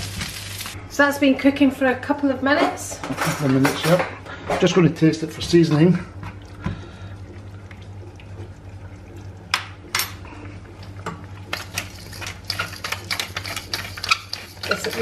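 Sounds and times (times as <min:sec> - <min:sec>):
pepper mill grinding: 0:11.5 - 0:15.0.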